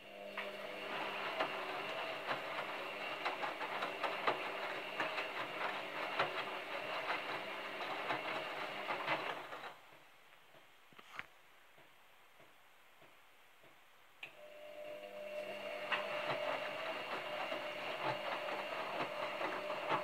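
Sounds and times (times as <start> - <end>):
washing machine motor hum: 0.0 - 10.0, 14.2 - 20.0.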